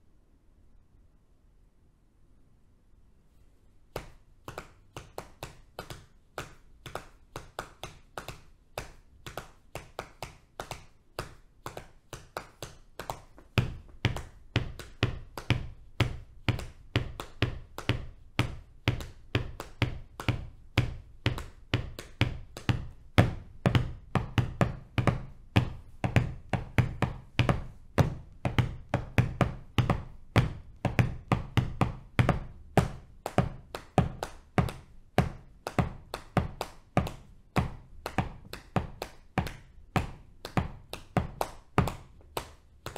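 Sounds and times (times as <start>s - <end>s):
hands tapping on thighs: 3.9s - 42.9s.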